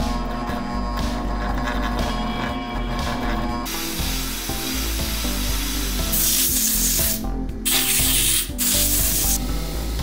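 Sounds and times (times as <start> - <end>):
background music: 0.0 - 10.0
blast cabinet hissing: 3.7 - 9.4.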